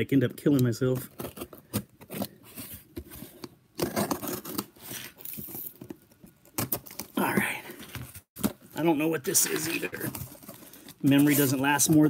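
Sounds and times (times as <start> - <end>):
knife cutting tape and cardboard: 3.4 - 5.2.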